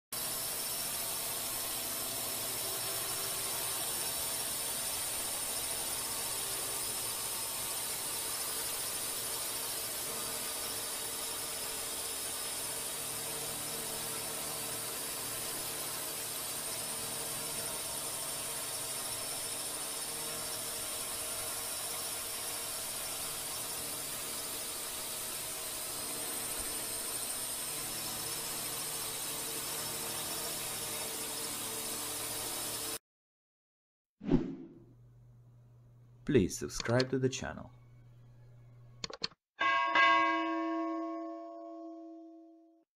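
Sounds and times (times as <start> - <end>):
drone motors whining: 0.2 - 33.0.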